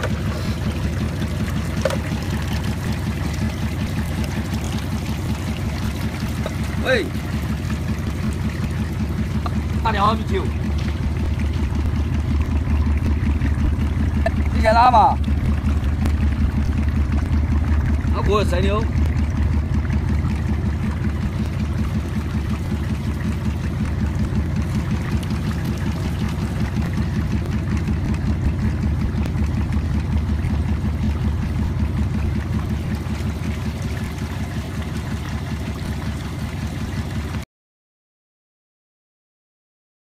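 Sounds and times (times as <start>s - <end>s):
machine drone: 0.0s - 37.4s
water washing across a deck: 0.0s - 37.4s.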